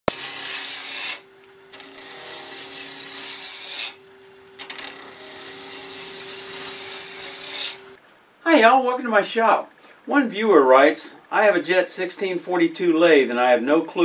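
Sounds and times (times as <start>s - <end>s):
lathe tool scraping wood: 0.1s - 4.0s, 4.6s - 8.0s.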